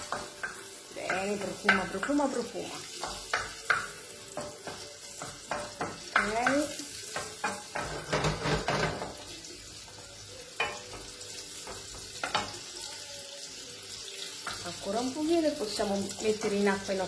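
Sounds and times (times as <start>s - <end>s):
meat sizzling in frying pan: 0.0s - 17.0s.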